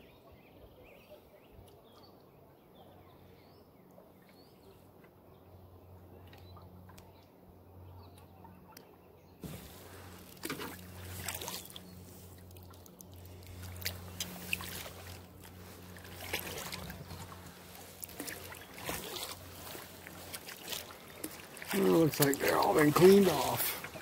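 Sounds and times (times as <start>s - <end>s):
kayak paddle strokes: 9.4s - 24.0s
water dripping off paddle: 9.5s - 24.0s.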